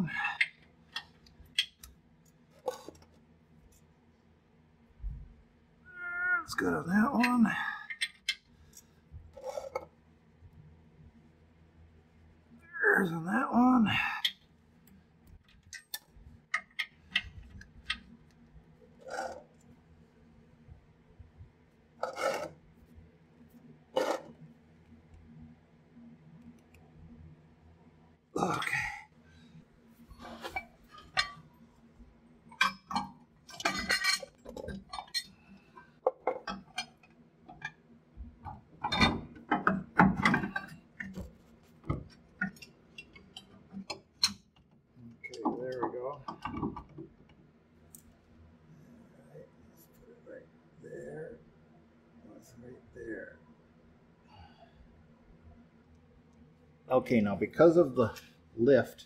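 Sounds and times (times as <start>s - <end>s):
metal clinks and knocks: 30.4s - 31.5s, 32.5s - 35.4s.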